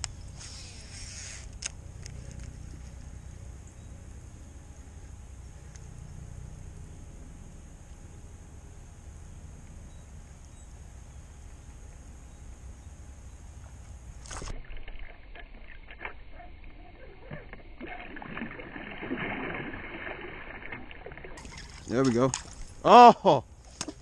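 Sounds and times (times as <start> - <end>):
steady low rumble: 0.0 - 24.0
water noise around kayak hull: 13.6 - 24.0.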